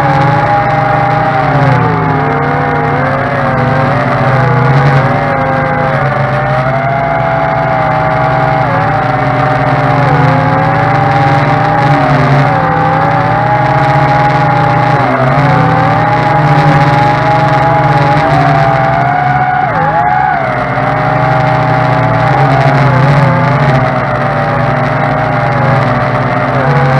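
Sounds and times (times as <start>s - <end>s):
drone propellers whining: 0.0s - 26.9s.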